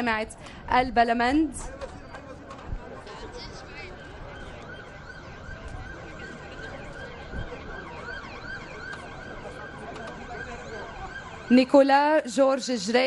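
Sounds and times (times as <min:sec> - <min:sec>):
background hubbub: 0:00.0 - 0:13.0
siren yelping: 0:03.5 - 0:11.8.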